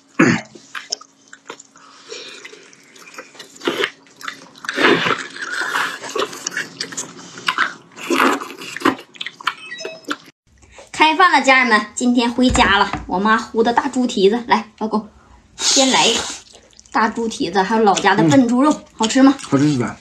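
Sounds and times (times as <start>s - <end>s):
people chewing meat: 0.0s - 10.9s, 15.6s - 20.0s.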